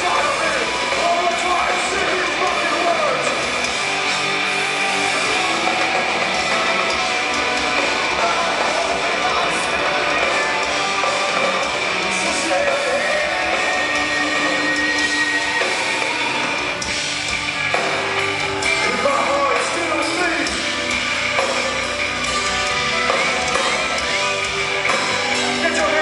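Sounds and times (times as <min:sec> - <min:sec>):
electric guitars: 0:00.0 - 0:26.0
metal band playing live: 0:00.0 - 0:26.0.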